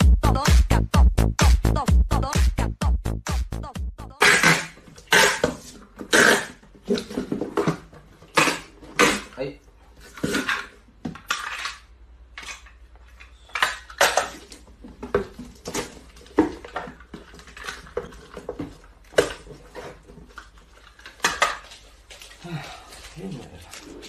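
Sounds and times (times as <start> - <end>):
packing tape pulled and torn: 4.2 - 7.0.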